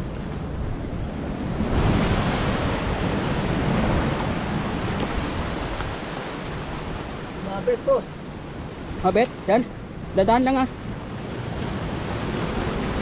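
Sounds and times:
wind on microphone: 0.0 - 7.4
surf breaking on rocks: 1.4 - 8.1.

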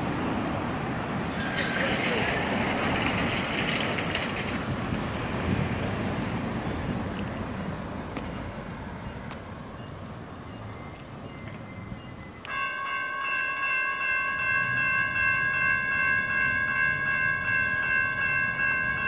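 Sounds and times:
cars driving past: 0.0 - 12.3.

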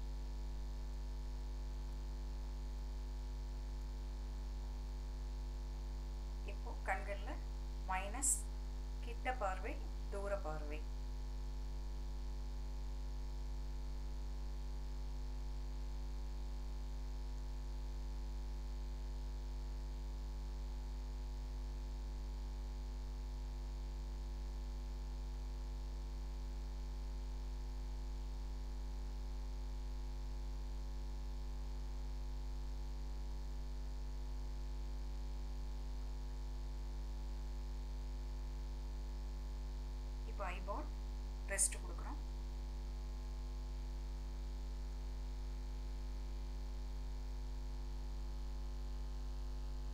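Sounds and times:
electrical mains hum: 1.9 - 16.4, 38.4 - 45.5.

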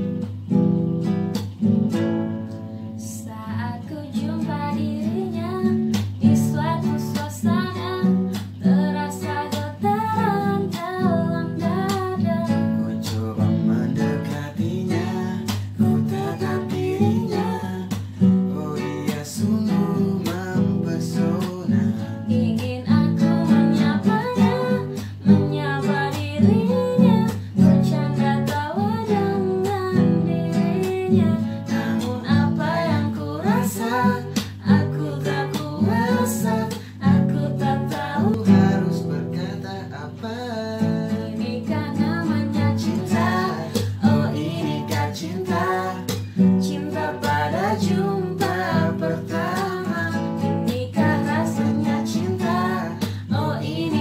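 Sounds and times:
acoustic guitar strumming: 0.0 - 54.0
woman singing: 2.9 - 54.0
man singing: 12.8 - 25.2, 31.5 - 41.8, 42.6 - 54.0.

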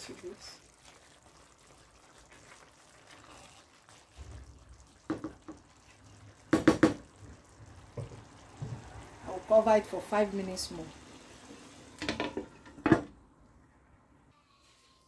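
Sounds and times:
spatula stirring rice in pan: 0.1 - 7.3
spatula knocking on pan: 5.1 - 5.6, 6.5 - 7.0.

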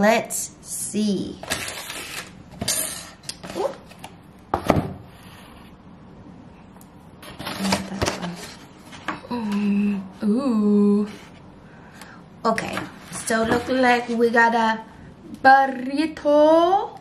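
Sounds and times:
woman humming: 9.2 - 11.1.

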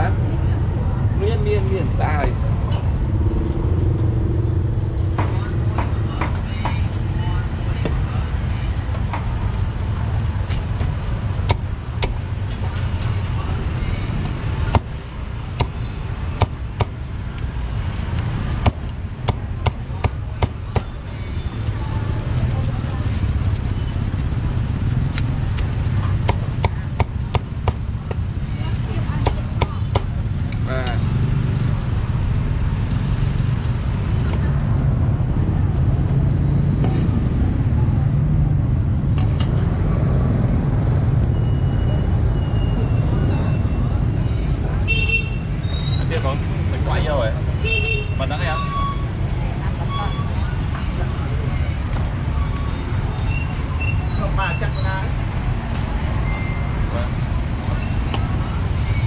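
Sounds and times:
street traffic rumble: 0.0 - 59.0
cleaver chopping on wooden block: 14.2 - 15.0, 15.6 - 15.8, 16.4 - 17.0, 18.6 - 20.9, 26.2 - 28.2, 29.2 - 30.1
cleaver striking chopping block: 14.7 - 14.9, 15.6 - 15.8, 16.4 - 17.0, 18.6 - 20.9.

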